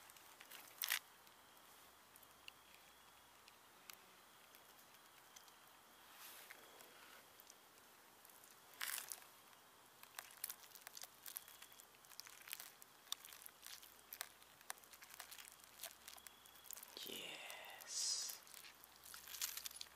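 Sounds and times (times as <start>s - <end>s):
plastic bag crinkling: 8.2s - 9.3s, 10.0s - 17.0s, 18.3s - 19.9s.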